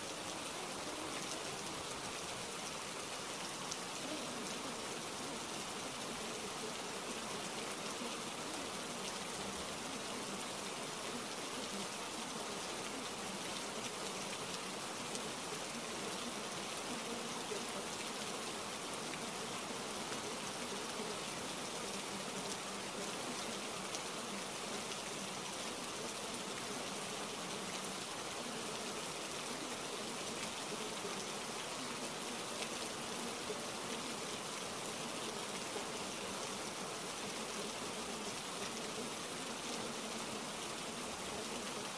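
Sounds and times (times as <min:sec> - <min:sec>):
steady rain-like hiss: 0:00.0 - 0:41.9.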